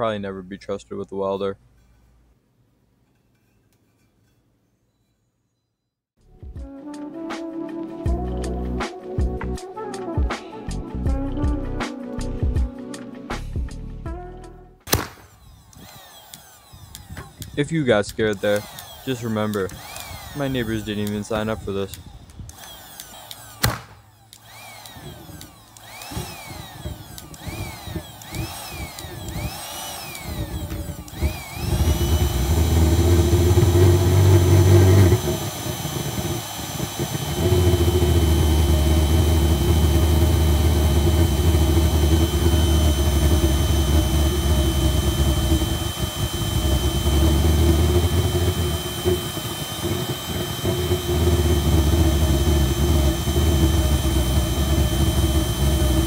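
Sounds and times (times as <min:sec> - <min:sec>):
electric blower whine: 0:15.1 - 0:56.0
pulsejet loud low buzz: 0:31.2 - 0:56.0.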